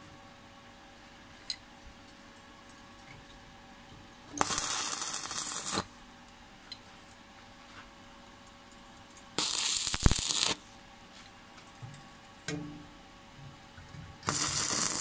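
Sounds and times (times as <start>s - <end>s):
faint steady hum: 0.0s - 15.0s
welding arc crackling: 4.4s - 5.9s, 9.4s - 10.7s, 14.2s - 15.0s.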